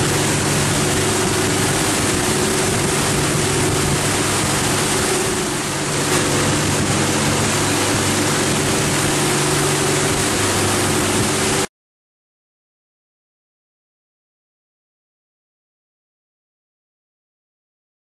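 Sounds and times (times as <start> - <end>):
boat engines droning: 0.0 - 11.7
wake water rushing: 0.0 - 11.7.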